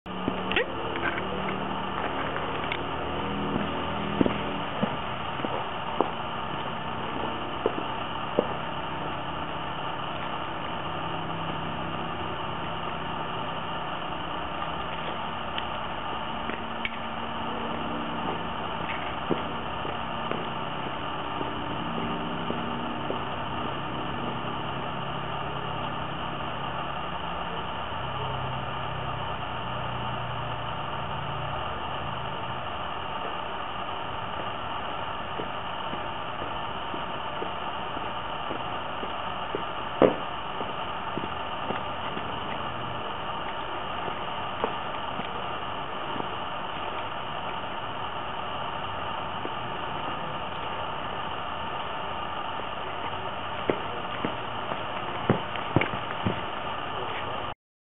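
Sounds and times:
footstep clicks: 0.1s - 9.0s, 14.6s - 24.3s, 33.2s - 51.9s, 53.0s - 57.4s
low engine-like hum: 0.1s - 57.5s
constant hiss: 0.1s - 57.6s.

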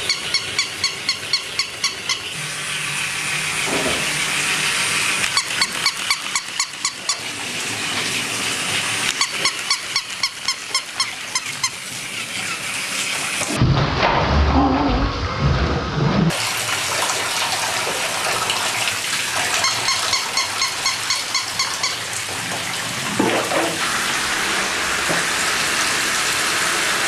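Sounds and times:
shower water spraying: 0.9s - 13.6s, 16.3s - 27.0s
handling noise rumble: 13.5s - 16.3s.

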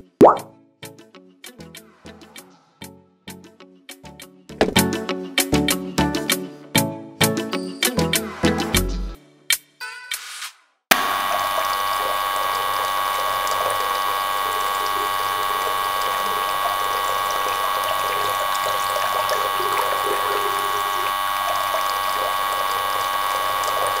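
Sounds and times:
water pump whining: 10.9s - 24.0s
water trickling into trough: 11.2s - 24.0s.

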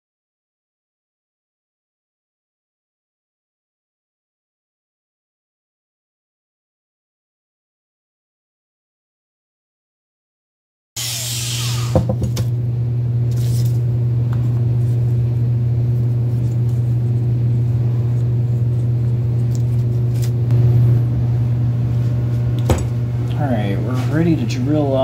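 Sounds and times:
low machine hum: 11.0s - 25.0s.

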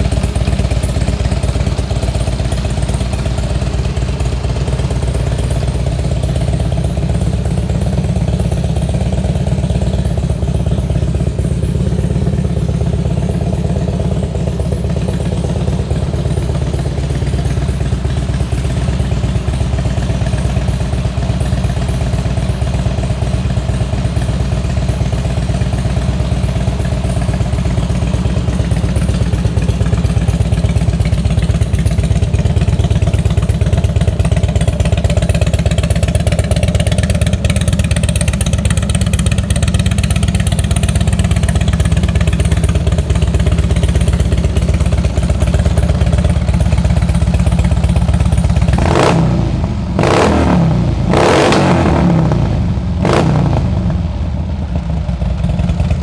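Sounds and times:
motorcycle engine idling: 0.0s - 56.0s.

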